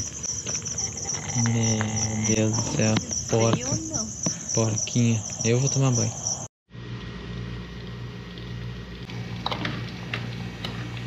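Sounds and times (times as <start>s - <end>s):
low electrical hum: 4.9s - 11.0s.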